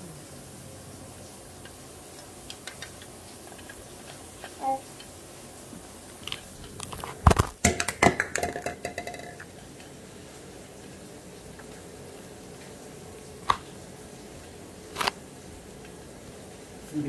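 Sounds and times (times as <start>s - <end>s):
objects knocking and clattering: 6.2s - 9.5s.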